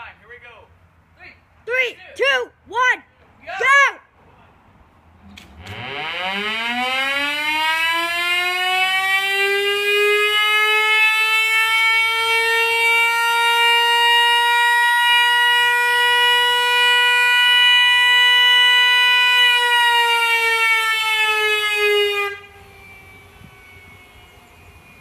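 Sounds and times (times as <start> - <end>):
siren winding up: 5.6 - 14.0, 19.0 - 25.0.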